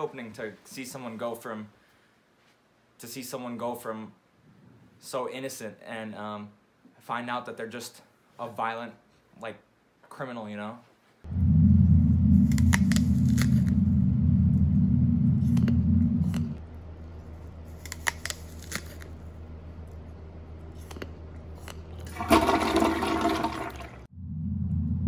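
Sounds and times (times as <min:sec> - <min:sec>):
deep steady rumble: 0:11.3 - 0:17.8, 0:24.1 - 0:25.0
apple being bitten: 0:12.3 - 0:14.0, 0:15.4 - 0:16.6, 0:17.3 - 0:20.0, 0:20.6 - 0:22.1
chewing crunchy food: 0:12.4 - 0:13.8, 0:15.5 - 0:22.1.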